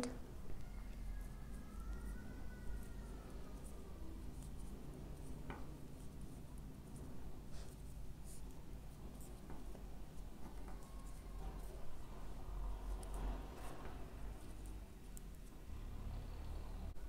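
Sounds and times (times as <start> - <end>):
yarn rubbing: 0.9 - 15.8.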